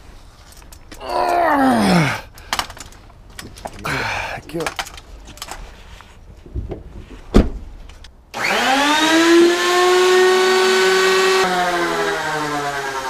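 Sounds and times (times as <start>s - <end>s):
truck door thump: 7.3s - 7.6s
electric motor whine: 8.4s - 13.0s.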